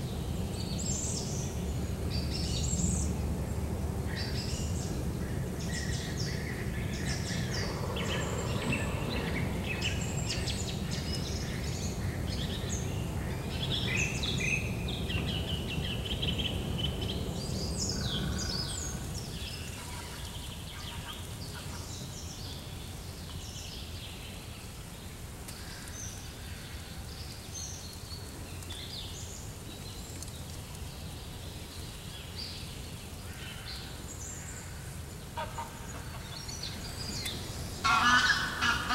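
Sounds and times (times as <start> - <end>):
steady low rumble: 0.0 - 22.8, 34.0 - 38.9
birds chirping and calling: 35.4 - 38.9.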